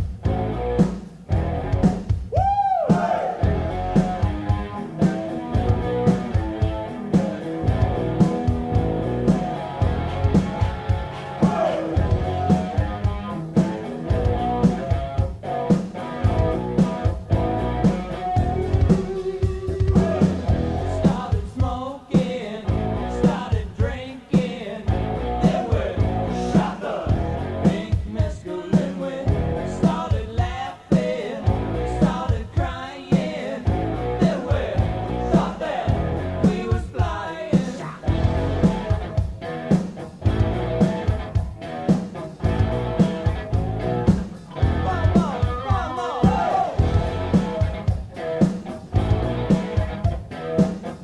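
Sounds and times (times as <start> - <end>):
electric guitar: 0.0 - 21.4, 24.9 - 28.1, 28.8 - 30.2, 33.4 - 37.1, 37.7 - 51.0
steady drum beat: 0.0 - 51.0
person singing: 21.0 - 38.0, 44.8 - 46.8.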